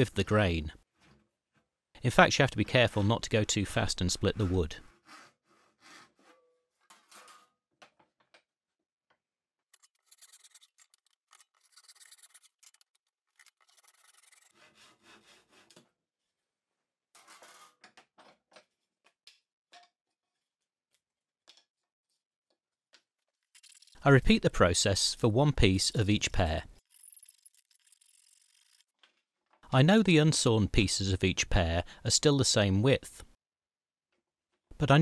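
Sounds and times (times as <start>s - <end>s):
hand saw ripping a board: 9.8s - 15.9s.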